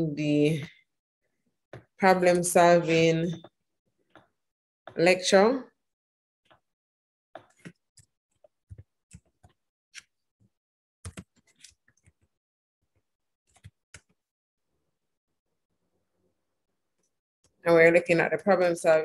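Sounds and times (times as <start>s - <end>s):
keyboard keys typing: 11.0s - 12.3s, 13.5s - 14.2s.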